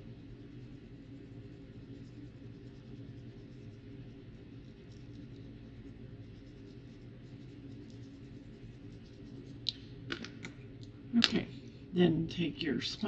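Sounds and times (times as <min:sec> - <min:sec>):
paintbrush scratching and dabbing: 0:00.0 - 0:09.7
low room hum: 0:00.0 - 0:13.0.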